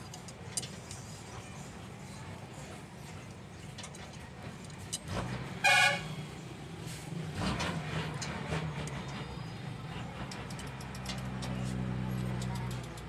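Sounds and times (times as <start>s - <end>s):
vehicle horn toot: 5.6s - 6.2s.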